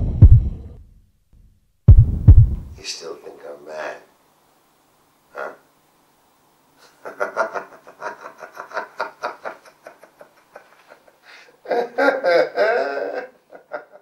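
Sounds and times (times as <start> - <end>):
person laughing: 6.8 - 14.0.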